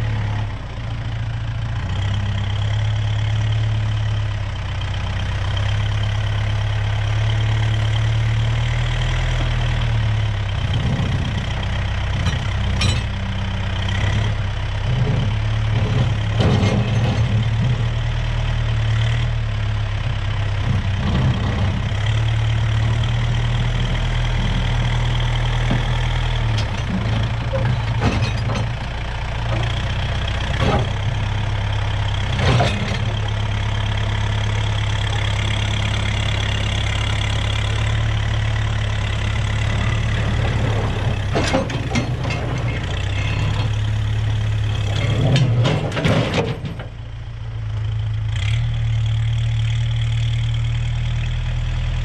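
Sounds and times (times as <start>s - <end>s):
tractor diesel engine running: 0.0s - 52.0s
clanks and knocks: 12.1s - 13.2s, 15.0s - 17.9s, 23.7s - 31.2s, 32.3s - 33.4s, 39.3s - 44.1s, 44.7s - 47.0s.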